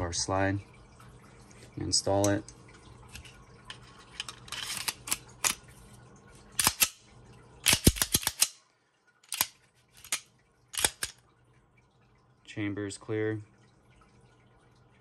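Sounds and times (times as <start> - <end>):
pistol slide clicks and clacks: 6.6 - 7.0, 7.6 - 8.6, 9.3 - 10.2, 10.8 - 11.2.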